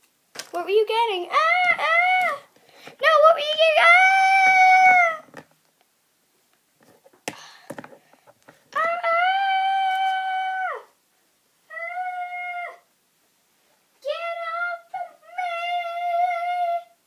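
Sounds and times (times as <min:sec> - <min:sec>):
child wailing: 0:01.3 - 0:02.5, 0:03.6 - 0:05.3, 0:08.8 - 0:10.9, 0:11.7 - 0:12.9, 0:14.1 - 0:17.0.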